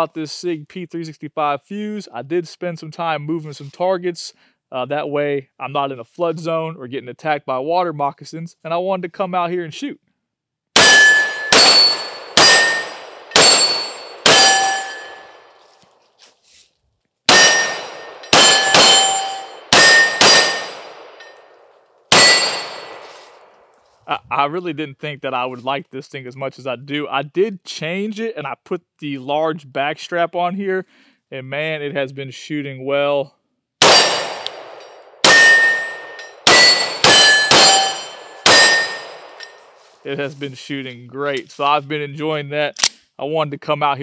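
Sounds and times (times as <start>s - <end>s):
metallic ring of steel targets: 10.8s - 15.6s, 17.3s - 23.5s, 33.8s - 39.9s
pistol shots: 10.8s - 15.6s, 17.3s - 23.7s, 33.8s - 39.8s.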